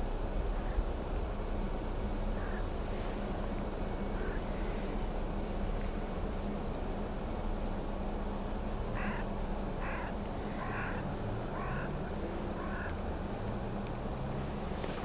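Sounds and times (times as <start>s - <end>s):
low background hum: 0.0s - 15.0s
crow cawing: 2.4s - 2.7s, 4.2s - 4.7s, 8.9s - 13.0s.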